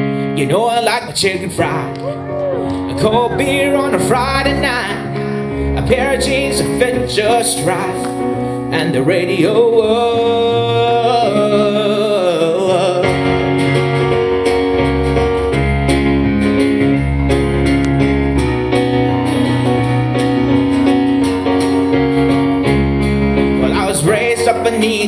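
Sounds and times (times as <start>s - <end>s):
acoustic guitar: 0.0s - 25.0s
digital piano: 0.0s - 25.0s
man singing: 0.4s - 2.2s, 2.8s - 13.8s, 23.5s - 25.0s
bass line with steady beat: 13.0s - 25.0s.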